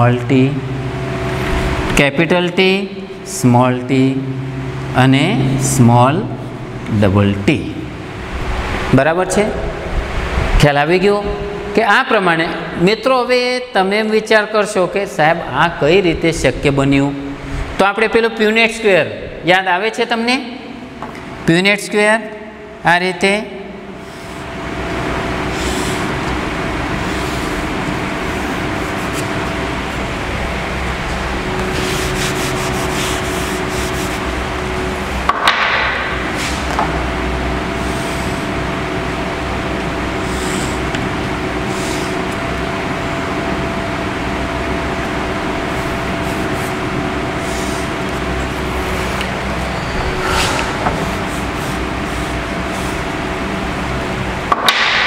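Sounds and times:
room hum: 0.0 - 55.0
marker scraping across board: 25.5 - 26.1, 28.3 - 29.4, 31.6 - 34.2.

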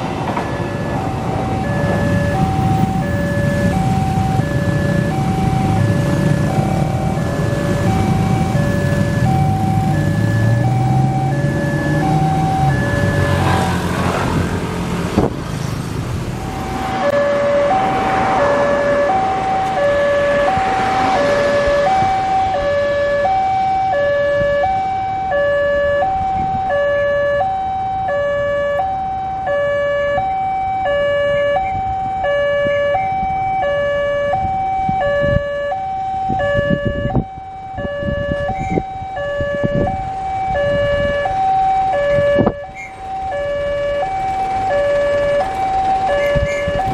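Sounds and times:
motorcycles passing: 0.0 - 25.3, 36.3 - 46.9
level-crossing alarm two tones: 0.4 - 13.7, 16.4 - 46.9.

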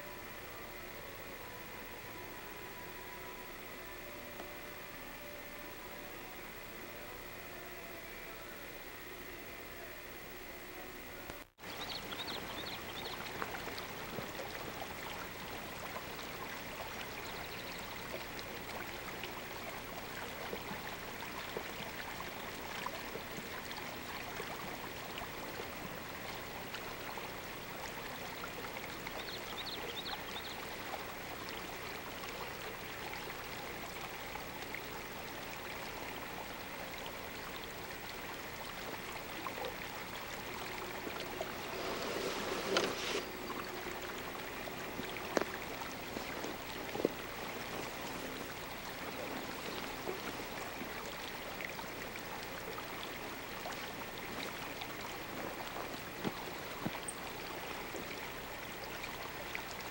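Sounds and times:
rushing hiss of outdoor ambience: 0.0 - 59.9.

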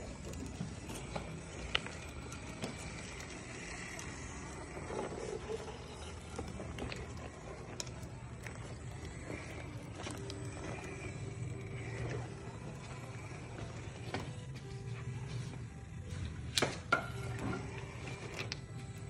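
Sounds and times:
toy car motor whirring: 0.0 - 14.4.

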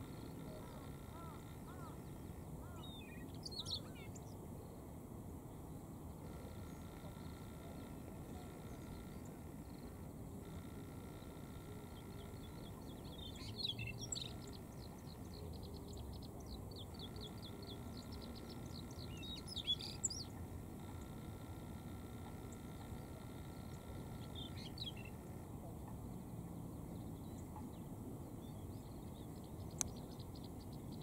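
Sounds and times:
bird singing warbled phrases: 0.0 - 4.4, 11.0 - 26.0.

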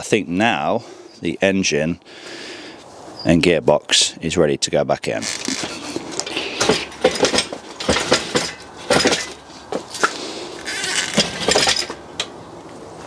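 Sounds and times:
metal crane rattling: 5.3 - 10.0, 10.6 - 12.3.

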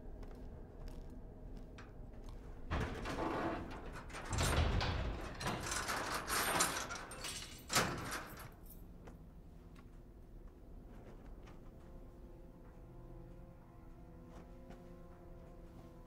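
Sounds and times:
mechanical rattling and clanking: 2.6 - 8.7.

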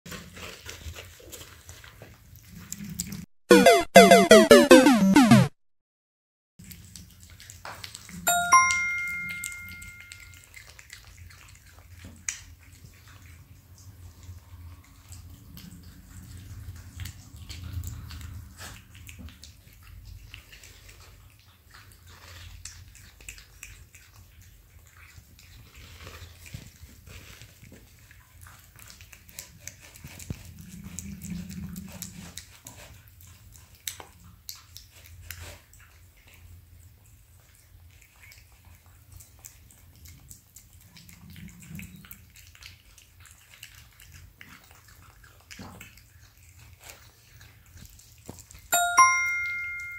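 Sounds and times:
cat chewing and licking: 0.1 - 3.2, 10.4 - 14.4, 15.0 - 48.7
two-note chime: 8.3 - 10.4, 48.8 - 49.9.

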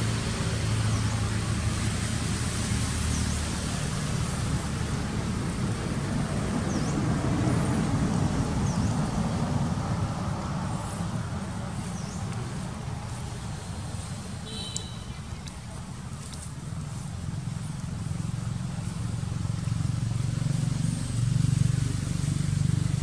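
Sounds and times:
traffic rumble: 0.0 - 23.0
faint high chirps: 14.4 - 16.5.

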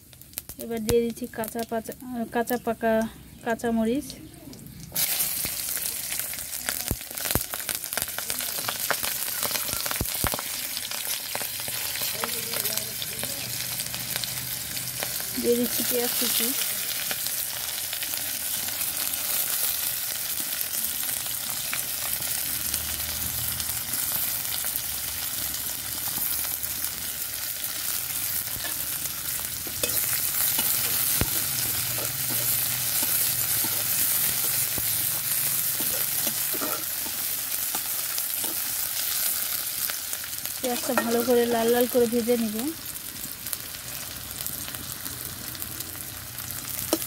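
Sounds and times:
onions sizzling in hot oil: 0.0 - 47.0
metal spatula scraping a pan: 29.6 - 38.7.

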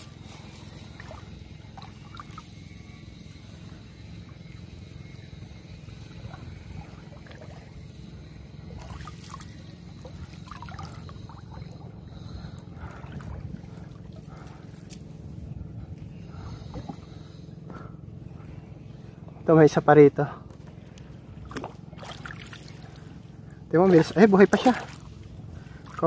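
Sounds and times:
water trickling and splashing: 0.0 - 2.7, 5.8 - 15.0, 21.4 - 26.0
low rumble: 0.0 - 23.8.

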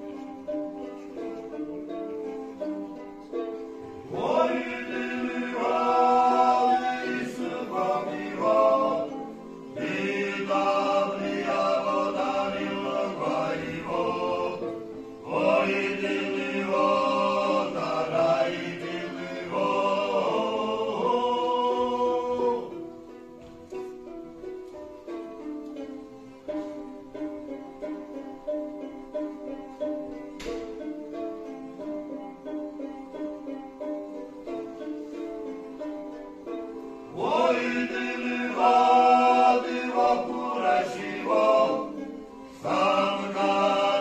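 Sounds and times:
string instruments playing: 0.0 - 44.0
male ensemble singing polyphony: 4.0 - 23.0, 37.1 - 44.0.

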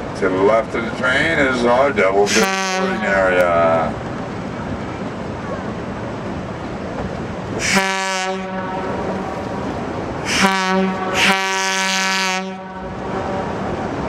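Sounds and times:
train running noise: 0.0 - 14.0
locomotive horn blasts: 2.3 - 3.4, 7.6 - 9.4, 10.2 - 13.6.

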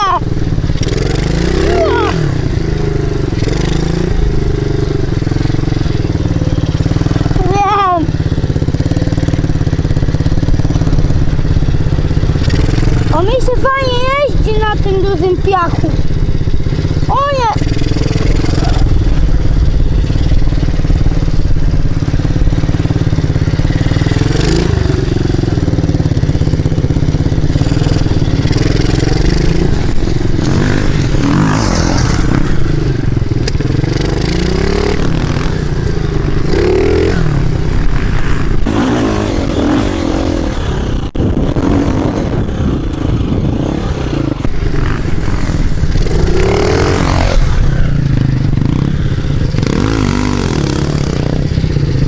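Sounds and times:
dirt bike engine revving: 0.0 - 52.0.

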